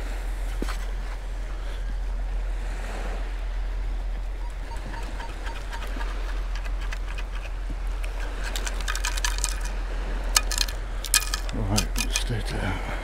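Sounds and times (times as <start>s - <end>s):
metal scoop rattling sand: 8.1s - 12.3s.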